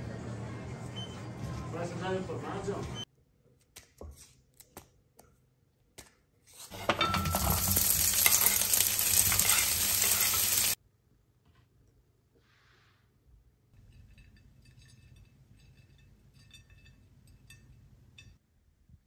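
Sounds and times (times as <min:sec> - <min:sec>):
food sizzling in a frying pan: 0:06.7 - 0:10.8.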